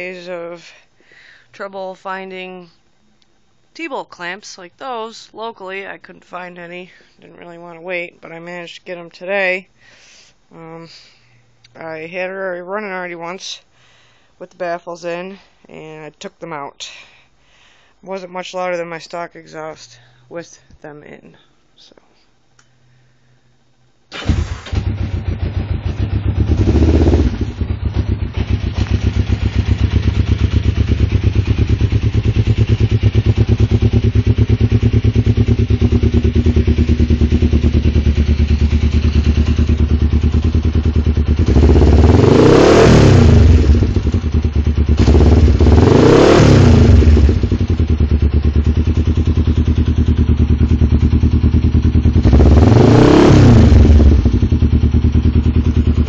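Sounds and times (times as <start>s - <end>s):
motorcycle engine starting: 24.1s - 56.0s
motorcycle engine idling and revving: 24.2s - 56.0s.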